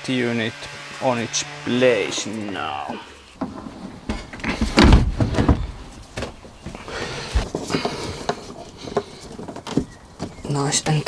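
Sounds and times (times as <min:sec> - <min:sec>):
knocks and thuds of gear: 0:03.4 - 0:10.4.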